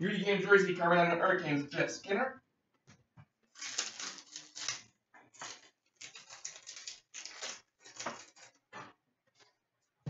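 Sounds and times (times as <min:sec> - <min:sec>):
trading cards rustling: 0:03.5 - 0:08.6.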